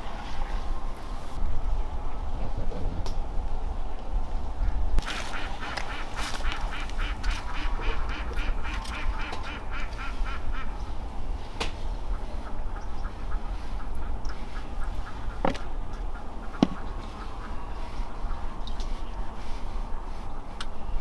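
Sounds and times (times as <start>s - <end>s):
ducks quacking: 5.0s - 10.8s, 12.1s - 19.4s.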